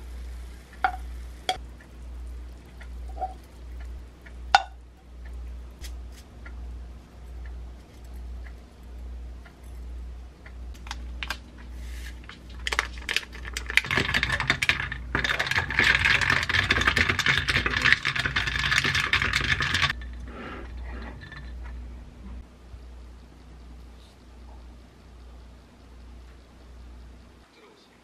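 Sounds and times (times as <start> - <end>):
ice cubes clinking in glass: 12.7 - 19.9.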